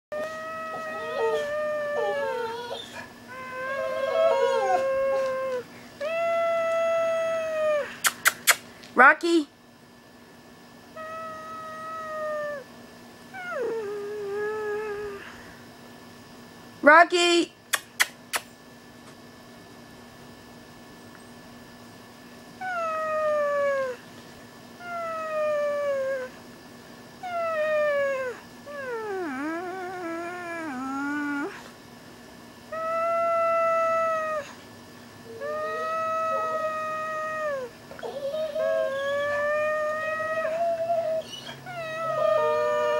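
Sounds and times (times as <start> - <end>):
dog howling: 0.1 - 8.0, 11.0 - 12.7, 22.6 - 24.0, 24.8 - 26.4, 27.2 - 31.6, 32.7 - 34.6, 35.2 - 42.9.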